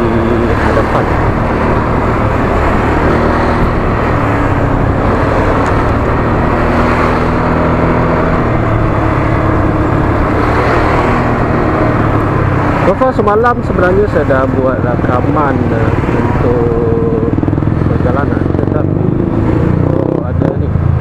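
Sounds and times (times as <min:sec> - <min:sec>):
wind rumble on microphone: 0:00.0 - 0:12.8
motorcycle engine running: 0:00.0 - 0:21.0.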